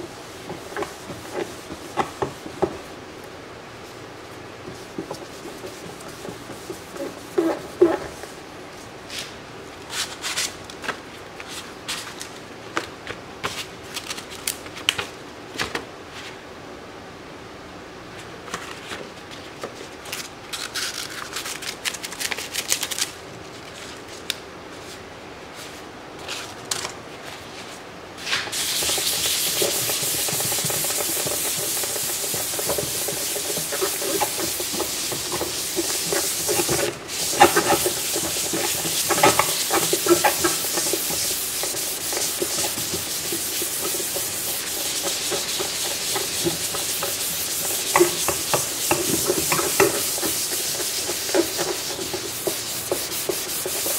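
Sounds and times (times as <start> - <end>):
hand sanding scratchy hiss: 0.0 - 2.6, 4.7 - 8.3, 28.5 - 53.9
pads tapping and rustling: 0.4 - 2.8, 4.6 - 8.2, 28.4 - 53.9
surface being wiped: 28.2 - 53.9.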